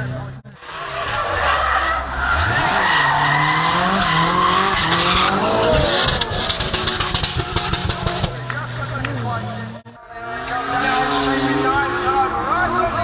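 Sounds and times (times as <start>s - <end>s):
car engines revving: 0.0s - 13.0s
tyres squealing: 0.6s - 8.7s.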